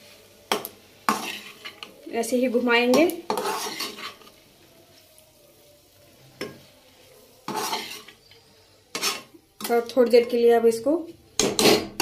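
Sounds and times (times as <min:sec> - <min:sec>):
faint frying sizzle: 0:00.0 - 0:12.0
metal spoon scraping pan: 0:00.5 - 0:04.4, 0:07.4 - 0:10.5, 0:11.4 - 0:12.0.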